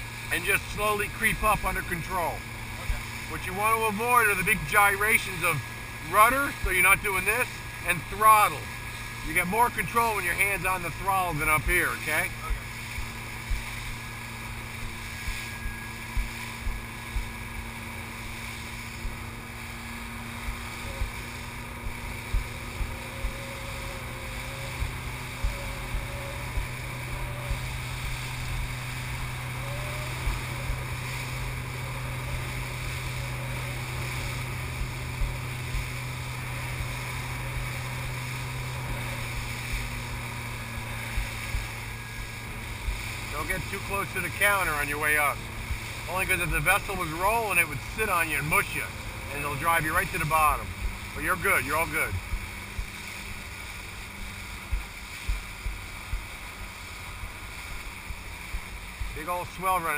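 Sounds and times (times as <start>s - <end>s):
boat engine running: 0.0s - 59.9s
hull slapping waves: 0.0s - 59.9s
rushing water and spray: 0.0s - 59.9s
wind on microphone: 12.4s - 43.4s.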